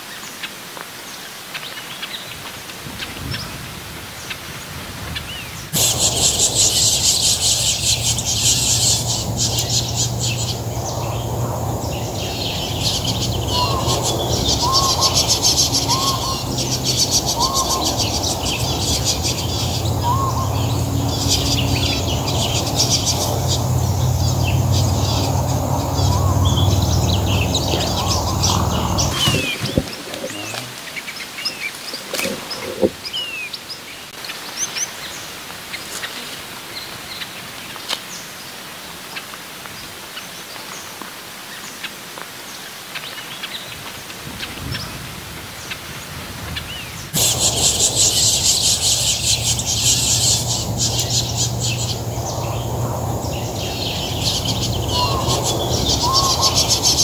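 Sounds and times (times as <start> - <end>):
low rumble: 5.8 - 30.4
finches chirping: 5.8 - 33.5, 47.2 - 57.0
up-slurred bird call notes: 12.2 - 30.7, 53.5 - 57.0.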